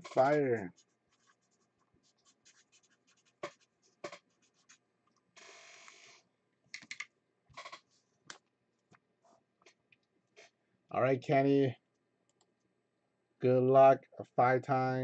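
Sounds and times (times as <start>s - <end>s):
pen scratching on paper: 0.0s - 4.8s.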